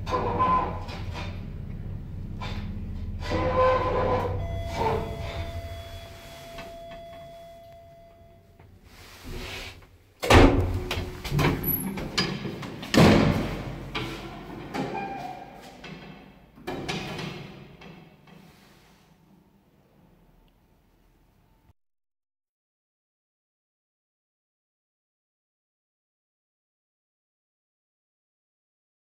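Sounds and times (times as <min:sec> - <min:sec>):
lift doors sliding with whine: 0:00.0 - 0:20.2
metal door clanking and thudding: 0:03.4 - 0:07.3, 0:10.2 - 0:18.3.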